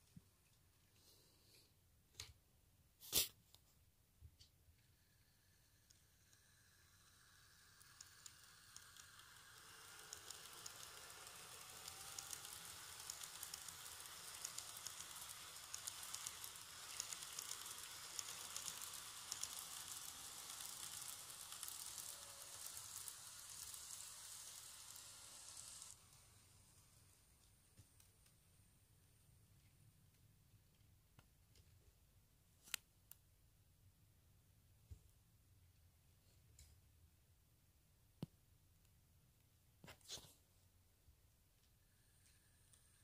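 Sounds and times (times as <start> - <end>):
model train wheels rattling: 5.2 - 27.3
motor whine: 6.7 - 26.2.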